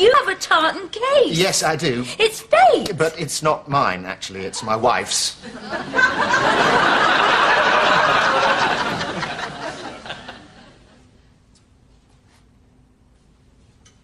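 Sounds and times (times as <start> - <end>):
studio audience laughing: 5.4 - 11.0.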